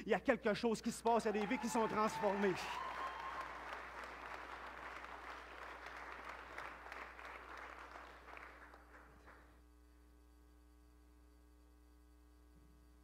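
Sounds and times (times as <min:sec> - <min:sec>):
congregation applauding: 0:01.2 - 0:09.5.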